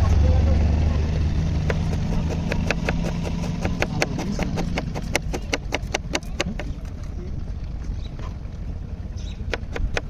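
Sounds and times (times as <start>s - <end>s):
knife slicing onion on cutting board: 1.6s - 6.7s, 9.4s - 10.0s.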